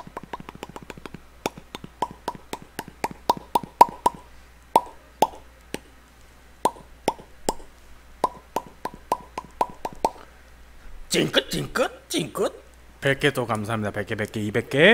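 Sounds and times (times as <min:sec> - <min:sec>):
man making mouth pops: 0:00.0 - 0:05.9, 0:06.6 - 0:10.3.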